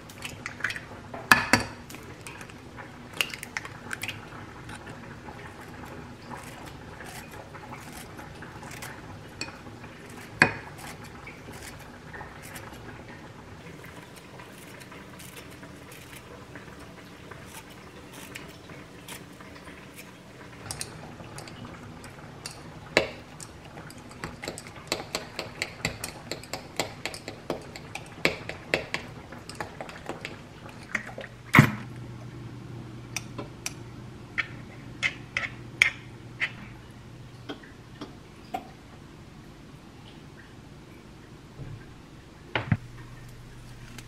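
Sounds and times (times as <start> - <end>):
low steady hum: 0.0 - 44.0.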